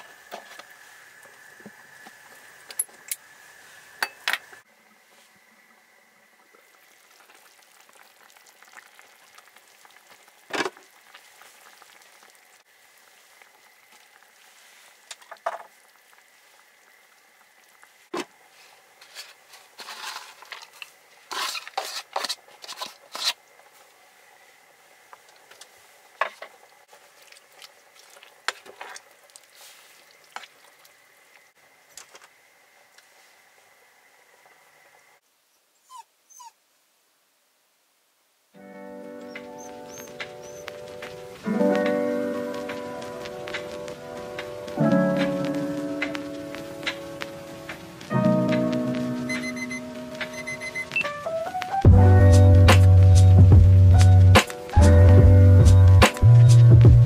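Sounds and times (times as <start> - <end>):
faint steady tone: 48.8 - 51.4.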